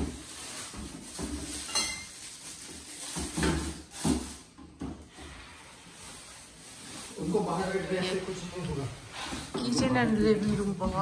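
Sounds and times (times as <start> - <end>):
bottles and jars knocking and clinking: 0.8 - 2.1.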